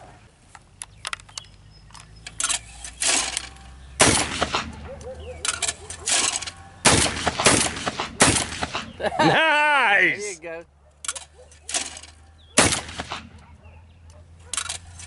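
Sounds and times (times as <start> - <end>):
shotgun shots: 2.4 - 9.0, 11.1 - 13.5.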